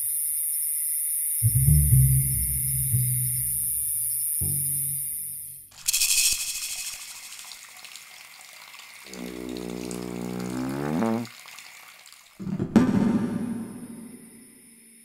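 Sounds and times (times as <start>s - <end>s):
low buzzing synth tone: 9.1s - 11.3s.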